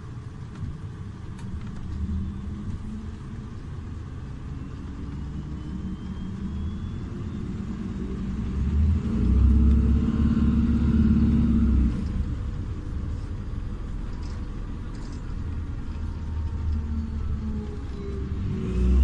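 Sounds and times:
bus engine rumbling: 0.0s - 19.0s
faint rising whine: 1.8s - 12.3s.

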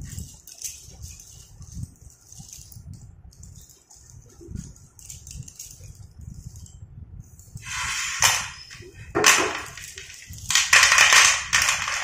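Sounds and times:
slate pencils clattering: 0.0s - 2.8s, 7.6s - 12.0s.

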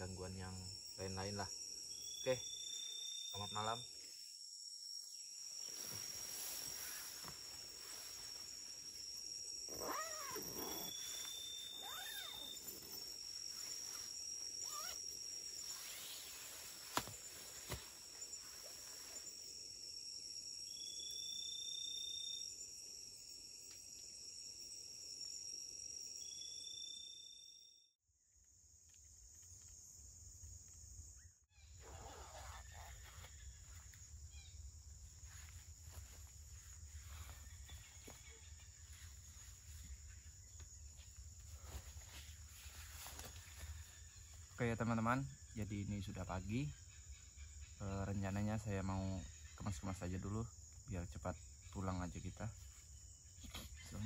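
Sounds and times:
insects chirring: 0.0s - 54.0s
low falling animal calls: 9.7s - 12.7s, 14.6s - 15.1s.

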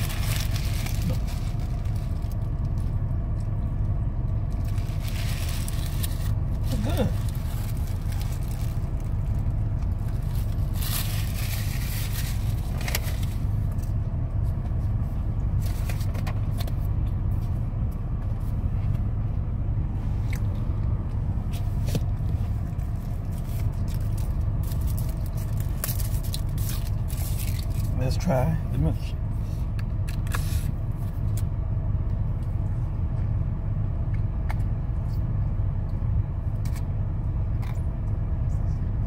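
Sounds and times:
paper wrapper crinkling: 0.0s - 2.9s, 4.5s - 13.4s, 23.0s - 28.0s
car engine rumble inside cabin: 0.0s - 39.0s.

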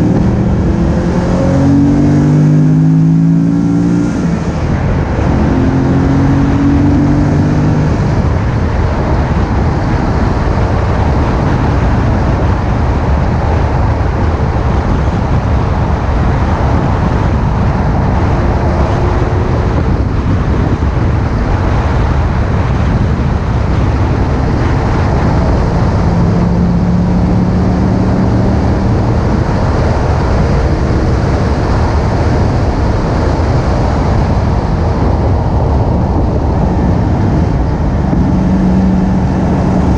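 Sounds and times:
faint car engine: 0.0s - 39.9s
rushing wind: 0.0s - 39.9s
tyre road noise: 0.0s - 39.9s.

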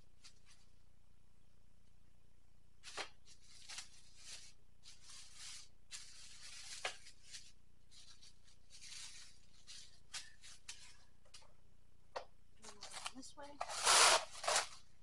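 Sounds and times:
plastic packaging crinkling: 2.8s - 11.0s, 12.7s - 15.0s.

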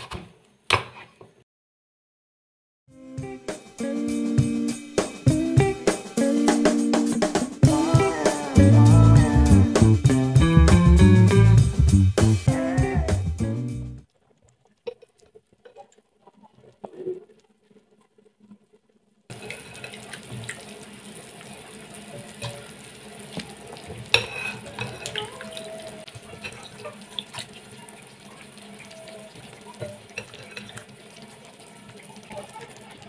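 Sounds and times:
broth bubbling: 14.0s - 33.0s.

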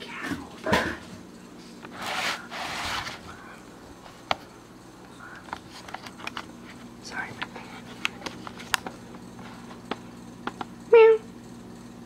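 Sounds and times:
handling rustle and scrape: 1.6s - 3.4s.

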